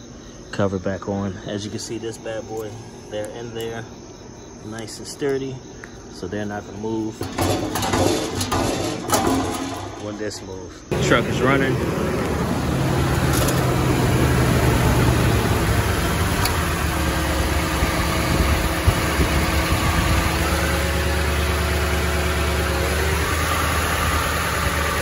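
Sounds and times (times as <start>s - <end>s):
truck engine idling: 7.2s - 25.0s.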